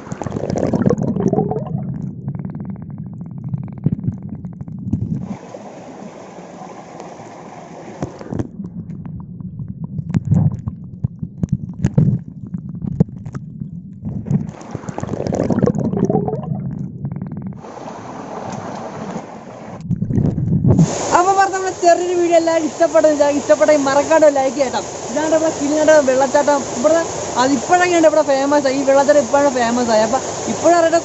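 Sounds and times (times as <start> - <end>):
muffled underwater stream gurgling: 0.0 - 31.0
loud hiss: 20.8 - 23.5.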